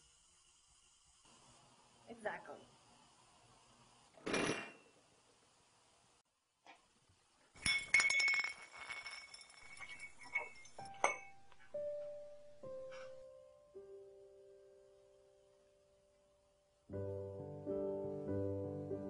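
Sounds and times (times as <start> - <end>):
light bulb clinking on floor: 7.6 - 11.7.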